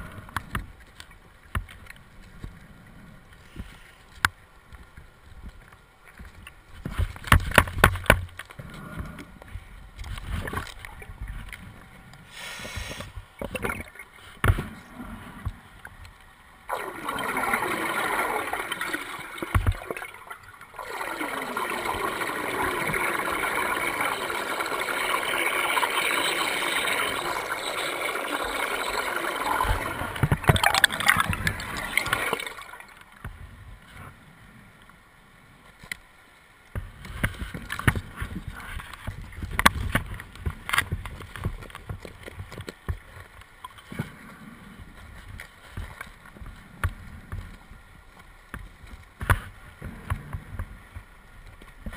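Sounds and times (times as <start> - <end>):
underwater regulator bubbles: 16.7 - 33.0.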